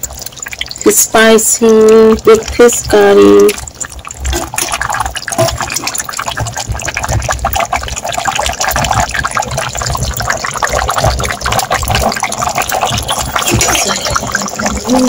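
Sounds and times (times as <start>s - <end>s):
curry boiling in a pot: 0.0s - 15.0s.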